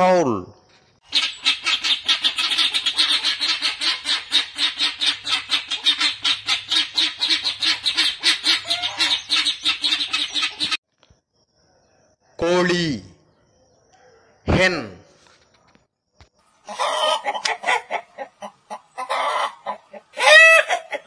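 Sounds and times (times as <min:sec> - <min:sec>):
guinea fowl calling: 0:01.0 - 0:10.8, 0:16.2 - 0:21.0.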